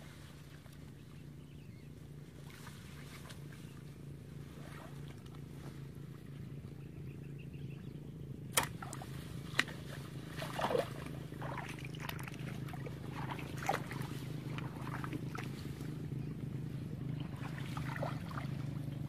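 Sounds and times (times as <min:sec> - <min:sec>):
steady low hum: 0:00.0 - 0:19.0
water sloshing from wading: 0:02.0 - 0:06.7, 0:08.3 - 0:19.0
sharp splashes and clicks: 0:08.5 - 0:15.6.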